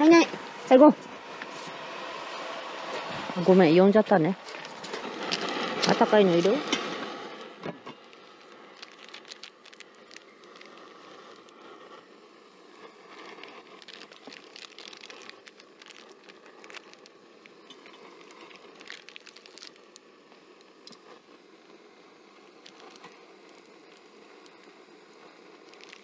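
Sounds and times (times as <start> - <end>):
plastic sachets crinkling: 4.4 - 21.2, 22.4 - 26.0.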